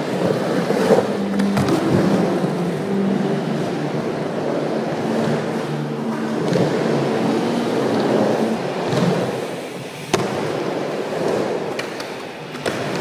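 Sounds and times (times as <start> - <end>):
skateboard clack: 0.0 - 2.6, 7.8 - 13.0
skateboard wheels rumbling: 0.0 - 13.0.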